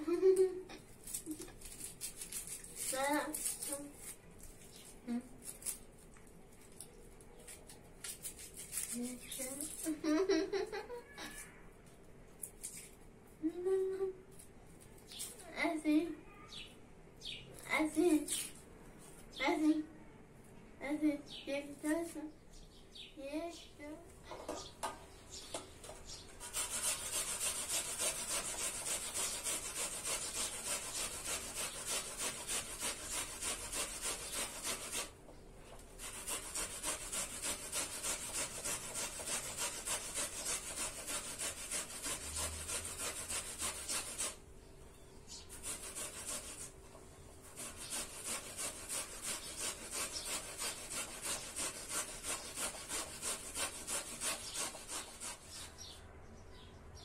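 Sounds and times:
onion grating on metal grater: 0.7s - 5.9s, 7.4s - 10.0s, 25.9s - 35.2s, 35.8s - 44.4s, 45.3s - 46.8s, 47.4s - 55.9s.

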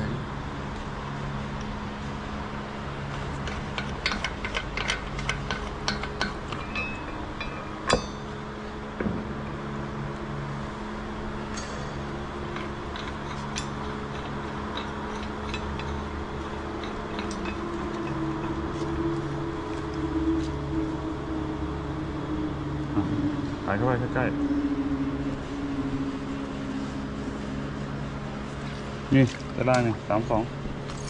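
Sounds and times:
low machinery hum: 0.0s - 31.0s
metallic clicks of clamp hardware: 3.4s - 8.0s, 12.5s - 16.1s
loud metal clank: 6.0s - 8.4s.

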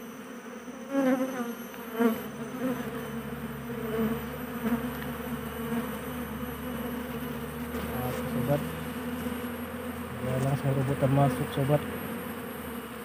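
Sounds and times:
bee flying close by: 0.0s - 13.0s
bees buzzing: 0.0s - 13.0s.

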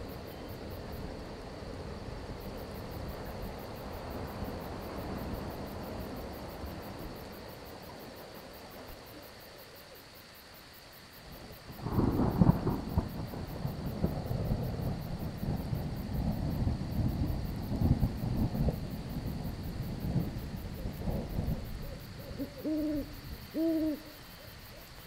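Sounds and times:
crickets chirping: 0.0s - 25.0s
thunder rumbling: 11.6s - 24.1s
thunder clap: 11.8s - 21.8s.

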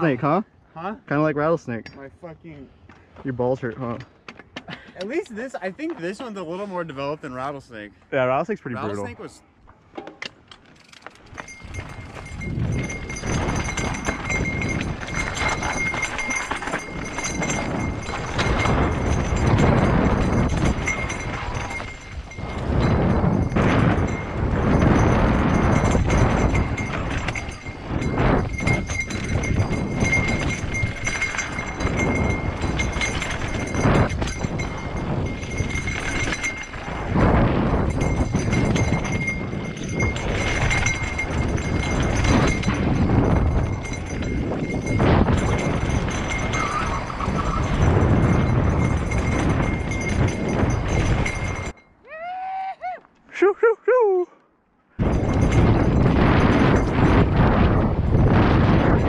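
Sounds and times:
bike rattling and knocking: 9.7s - 51.9s, 55.0s - 59.0s
wind rumble on microphone: 11.1s - 53.0s, 55.0s - 59.0s.

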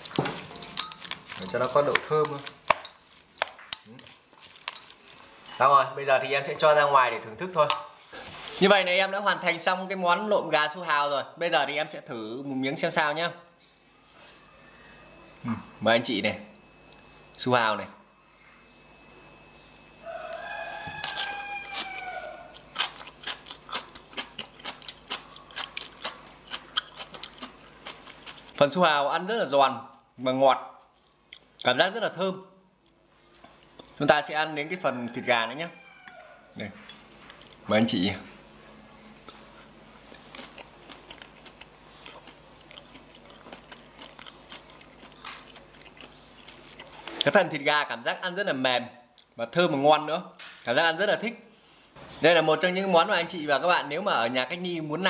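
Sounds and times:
person chewing crunchy salad: 0.0s - 5.6s, 19.7s - 28.8s, 30.8s - 31.7s, 32.8s - 34.0s, 36.0s - 37.7s, 39.2s - 47.3s
rooster crowing: 14.1s - 15.4s, 19.9s - 22.8s, 34.6s - 36.7s.

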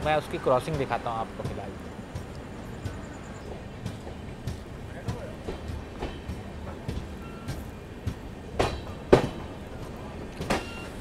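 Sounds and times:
train rumbling: 0.0s - 11.0s
wheels clattering over rail joints: 0.0s - 11.0s.

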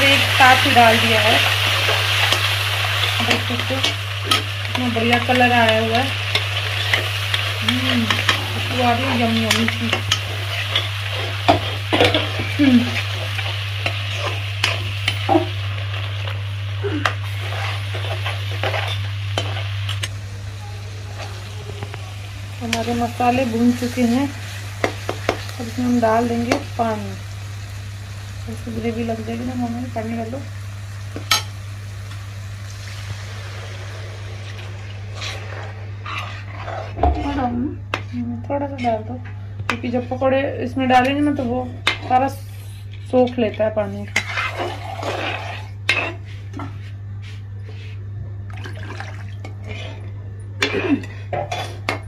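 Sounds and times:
paste sizzling in hot oil: 0.0s - 20.2s, 22.2s - 37.5s, 44.1s - 46.2s
low hum: 1.8s - 24.8s
spatula scraping metal pan: 35.2s - 38.1s, 44.1s - 46.2s.

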